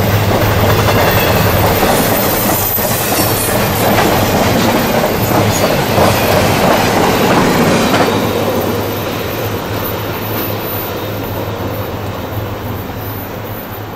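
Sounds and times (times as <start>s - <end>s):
freight train rumbling past: 0.0s - 13.9s.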